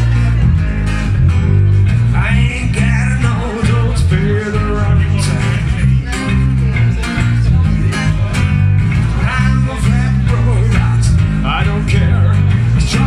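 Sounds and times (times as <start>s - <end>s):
acoustic guitar: 0.0s - 13.0s
electric bass guitar: 0.0s - 13.0s.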